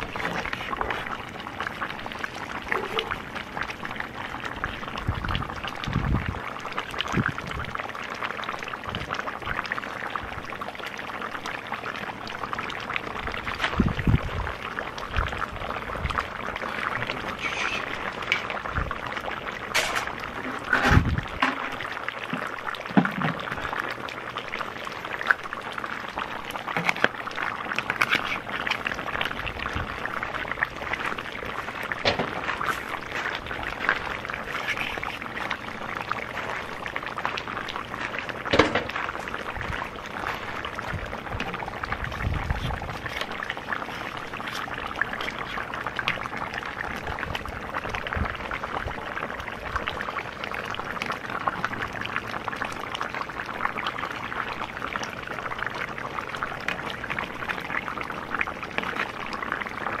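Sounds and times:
meat bubbling and sizzling: 0.0 - 60.0
metal ladle scraping a pot: 17.4 - 18.6, 27.9 - 28.6, 34.4 - 35.3.

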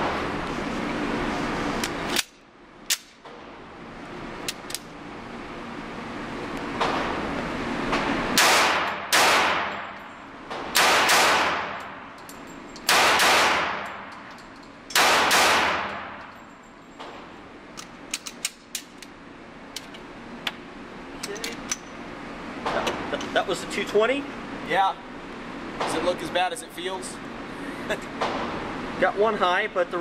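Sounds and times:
pistol shots ringing indoors: 8.4 - 10.0, 10.7 - 12.0, 12.8 - 14.1, 14.9 - 16.2.

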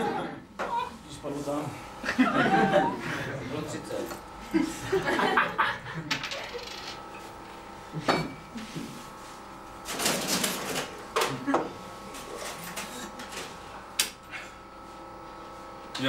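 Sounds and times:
coins clinking on counter: 6.1 - 7.0.

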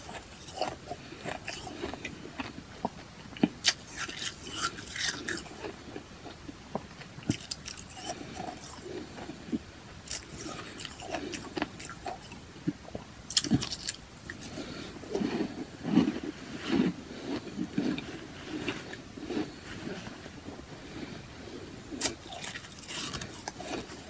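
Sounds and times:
soft chewing: 0.0 - 24.0
ice crunching: 22.0 - 24.0.

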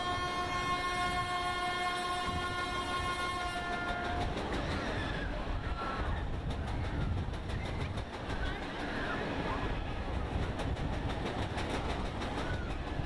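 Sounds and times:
fairground ride horn: 0.0 - 4.3.

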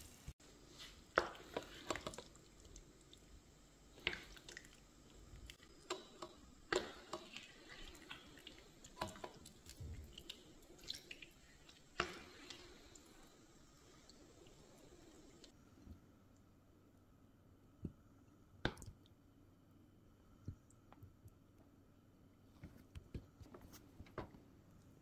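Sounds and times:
wet squelches of sticky sauce: 0.9 - 15.6.

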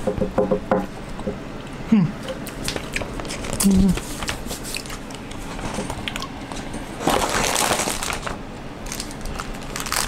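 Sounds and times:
crunching snack being eaten: 7.0 - 10.0.

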